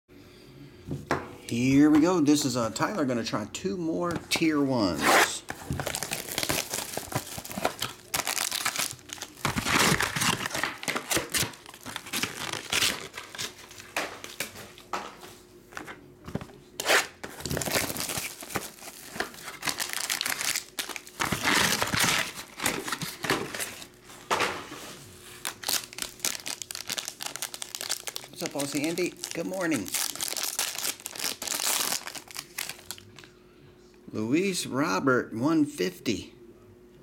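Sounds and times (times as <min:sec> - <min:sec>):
plastic shrink wrap crinkling and tearing: 0:05.2 - 0:14.4, 0:16.8 - 0:23.9, 0:25.4 - 0:33.3
foil packs rustling: 0:05.2 - 0:14.8, 0:17.2 - 0:24.0, 0:25.4 - 0:33.1.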